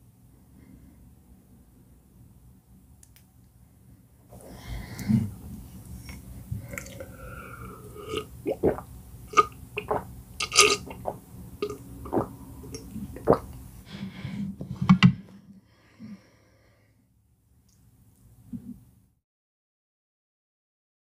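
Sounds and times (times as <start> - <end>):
person gulping water: 6.1 - 13.6
loud swallows and throat sounds: 8.0 - 13.5.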